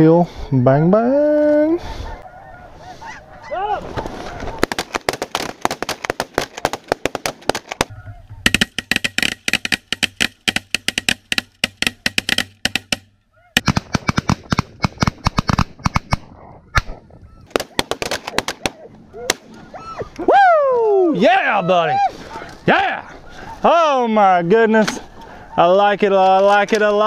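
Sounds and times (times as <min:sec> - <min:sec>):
flock of geese honking: 0:01.8 - 0:04.8, 0:23.3 - 0:24.0.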